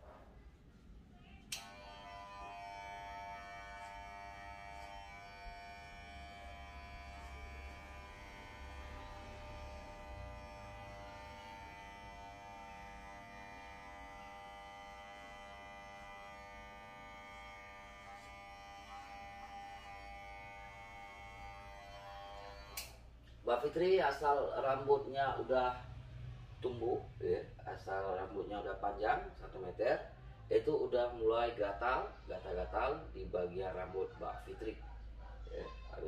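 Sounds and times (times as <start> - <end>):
electric hair clipper running: 1.5 - 23.0.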